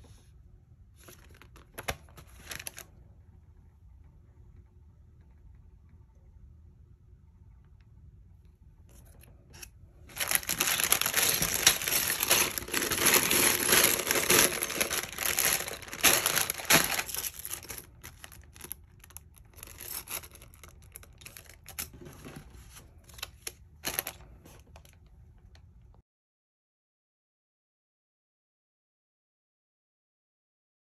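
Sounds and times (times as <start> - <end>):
plastic bags crinkling: 1.0 - 2.9, 10.0 - 25.1.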